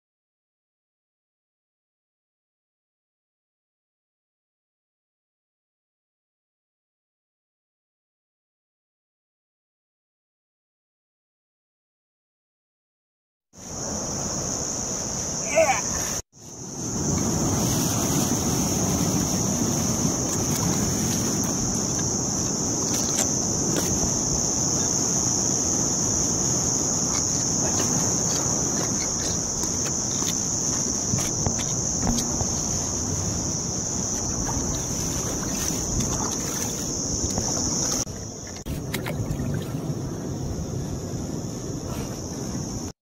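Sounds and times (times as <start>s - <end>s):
high-pitched insect drone: 13.6s - 39.0s
sea noise: 13.6s - 43.0s
wind on microphone: 13.7s - 42.9s.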